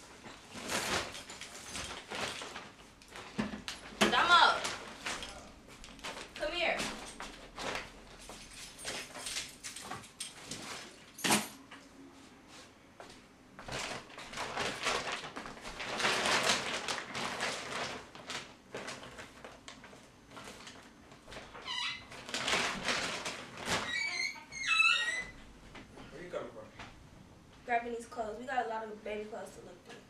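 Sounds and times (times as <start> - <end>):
rustling of bag and clothes: 0.0 - 11.5, 12.2 - 26.0
short high squeak: 23.8 - 25.4.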